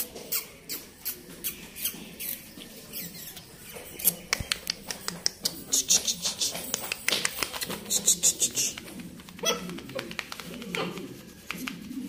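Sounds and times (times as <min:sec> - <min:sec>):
puppies squeaking: 0:00.0 - 0:08.8, 0:09.4 - 0:10.0
sharp ticks: 0:04.0 - 0:10.7.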